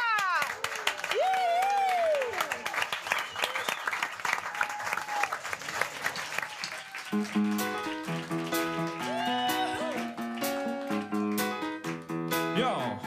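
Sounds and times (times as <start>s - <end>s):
people cheering: 0.0s - 11.9s
audience applauding: 0.0s - 12.8s
band playing bass and guitar: 7.2s - 13.0s.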